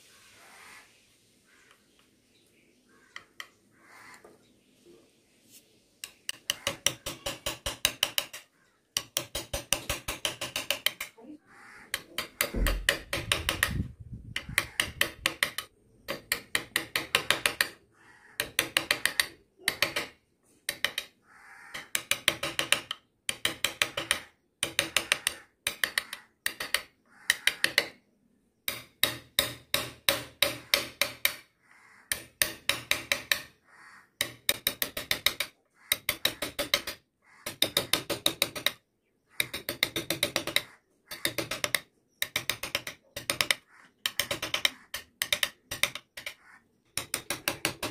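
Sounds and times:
chisel cutting into wood: 0:11.9 - 0:21.1, 0:21.8 - 0:28.0, 0:28.7 - 0:31.5, 0:32.1 - 0:33.6, 0:34.2 - 0:47.9.

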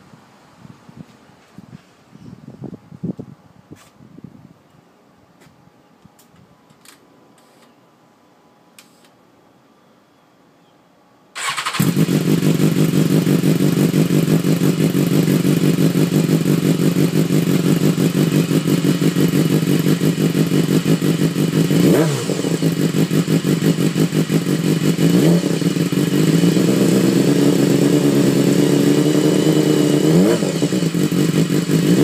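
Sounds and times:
motorcycle engine idling: 0:11.4 - 0:32.0.

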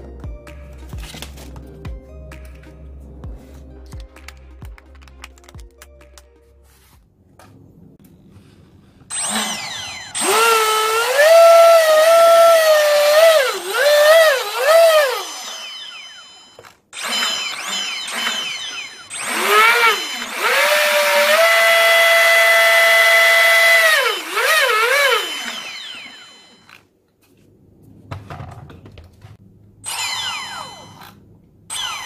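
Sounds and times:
electric motor whine: 0:09.1 - 0:26.8.

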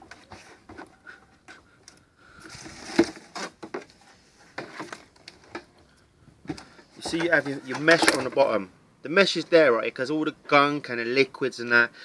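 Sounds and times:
hose scraping inside plastic barrel: 0:02.4 - 0:05.1.

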